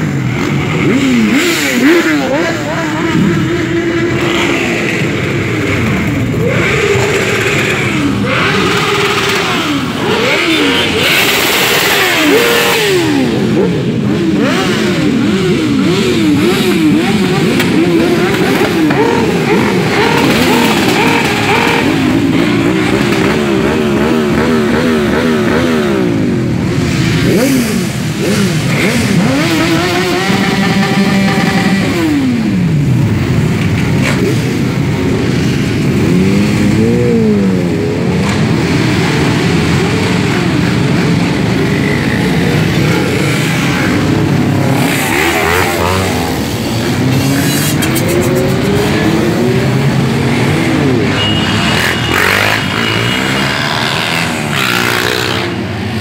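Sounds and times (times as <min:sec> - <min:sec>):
motorcycles revving past: 0:00.0 - 0:56.0.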